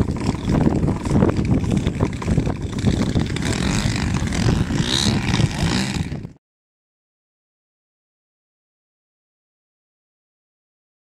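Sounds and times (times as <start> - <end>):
model plane engines running: 0.0 - 6.4
wind buffeting microphone: 0.0 - 6.4.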